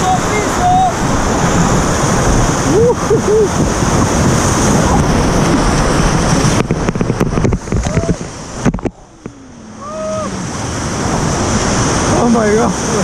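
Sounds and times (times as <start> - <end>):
whitewater rapids rushing: 0.0 - 13.0
wind buffeting microphone: 0.0 - 13.0
water splashes and knocks: 3.5 - 9.4.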